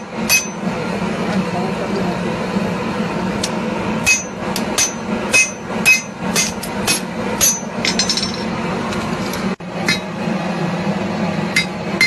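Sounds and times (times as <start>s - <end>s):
hammer striking hot steel on anvil: 0.0s - 0.7s, 3.4s - 8.6s, 9.8s - 10.2s, 11.5s - 12.0s
steady low hum: 0.0s - 12.0s.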